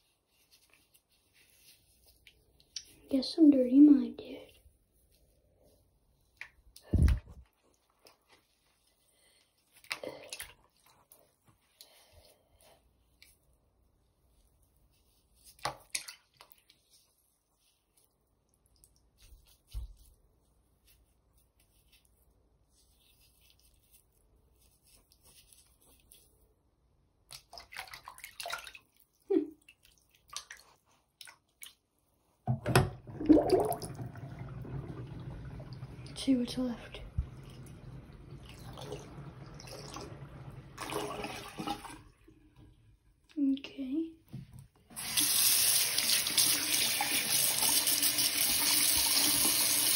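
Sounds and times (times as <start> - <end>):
water sloshing and splashing: 27.3 - 42.8.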